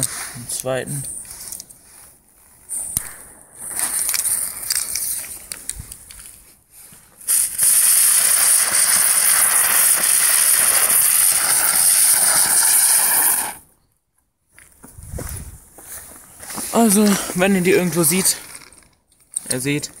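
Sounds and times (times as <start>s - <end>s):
firework spraying sparks hissing: 7.1s - 13.7s.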